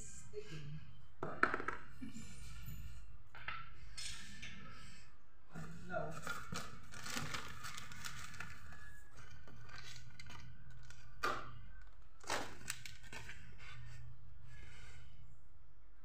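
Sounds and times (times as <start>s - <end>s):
packaging rustling and crinkling: 6.1s - 13.6s.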